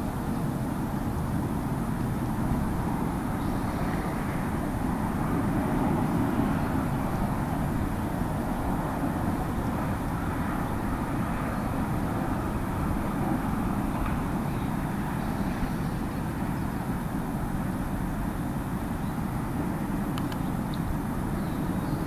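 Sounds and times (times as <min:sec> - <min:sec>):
faint ticks: 0:20.1 - 0:20.5.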